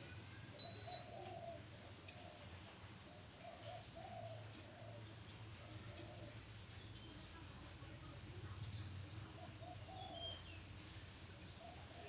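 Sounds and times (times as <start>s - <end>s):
small birds chirping: 0.0s - 12.0s
dove cooing: 0.6s - 6.4s, 9.3s - 10.4s, 11.5s - 12.0s.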